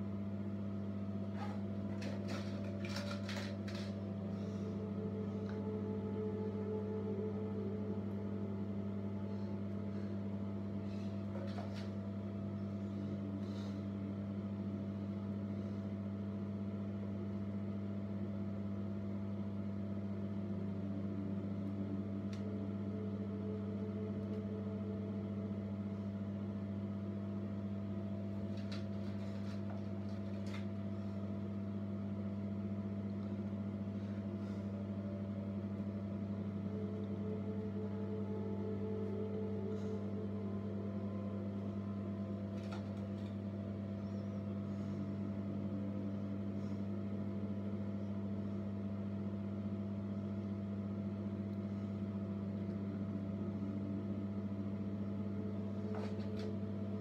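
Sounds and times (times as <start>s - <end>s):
low electrical hum: 0.0s - 57.0s.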